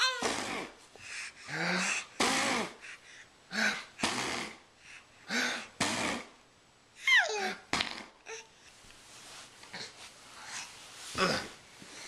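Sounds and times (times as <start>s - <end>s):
man blowing raspberries: 1.5s - 2.8s, 3.6s - 4.6s, 5.3s - 6.3s.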